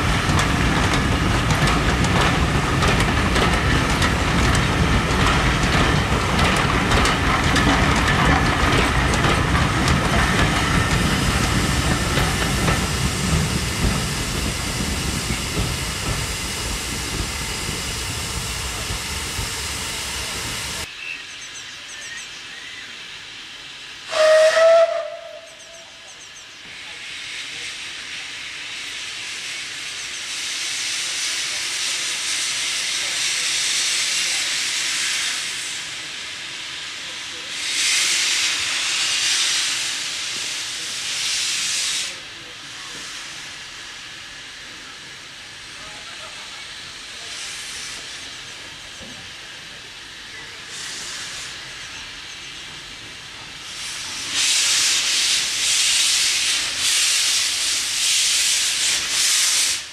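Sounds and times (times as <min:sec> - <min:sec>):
steam hissing: 0:00.0 - 0:20.9, 0:22.6 - 0:59.9
train coaches rumbling past: 0:00.0 - 0:20.9
steam locomotive whistle: 0:24.1 - 0:25.9.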